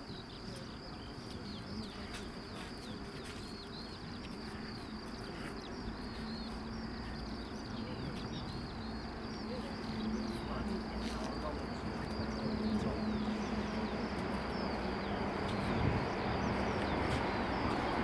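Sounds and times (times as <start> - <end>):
distant jet engines rumbling: 0.0 - 18.0.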